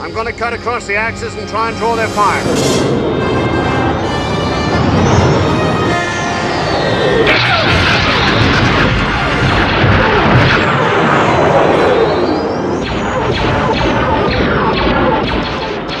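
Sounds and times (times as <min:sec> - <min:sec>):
orchestral music: 0:00.0 - 0:12.7
rising whine: 0:00.0 - 0:15.2
starfighters flying past: 0:00.0 - 0:15.2
explosions: 0:02.4 - 0:16.0
laser blasts: 0:07.2 - 0:16.0.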